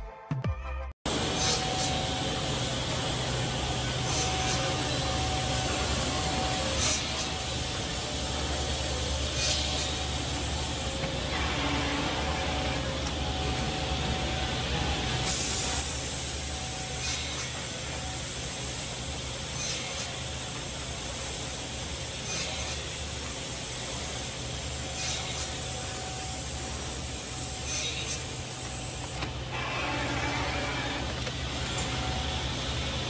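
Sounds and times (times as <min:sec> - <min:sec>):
compressed air bursts: 0:01.1 - 0:11.0, 0:15.2 - 0:29.2
machine humming and hissing: 0:01.1 - 0:33.0.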